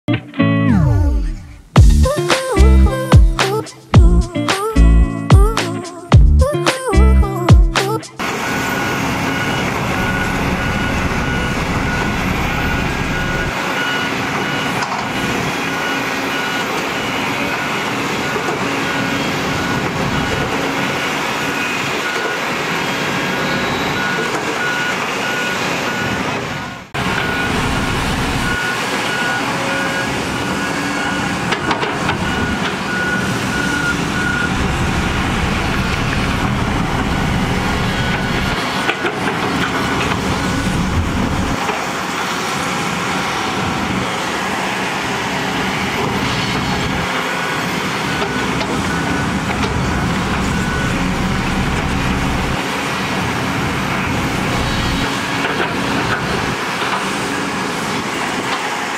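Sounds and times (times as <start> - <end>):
heavy diesel machinery running: 0.7 - 3.1, 8.1 - 58.9
reversing alarm beeping: 8.2 - 41.6, 46.6 - 52.7.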